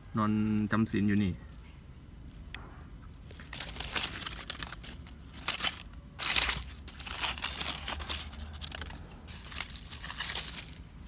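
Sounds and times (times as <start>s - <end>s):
dry leaves rustling and crunching: 3.2s - 11.0s.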